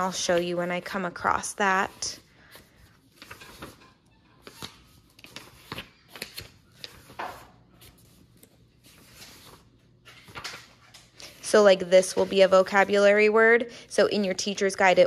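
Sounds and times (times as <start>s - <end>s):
paper pages turning: 1.3s - 13.0s.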